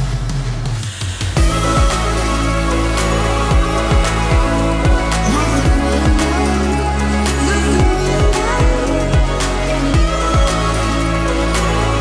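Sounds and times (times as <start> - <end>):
electronic music with sliding bass: 0.0 - 12.0.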